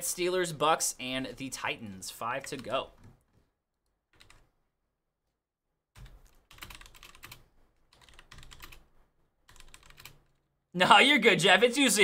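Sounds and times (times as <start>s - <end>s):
computer keyboard typing: 4.1s - 4.5s, 6.0s - 10.4s.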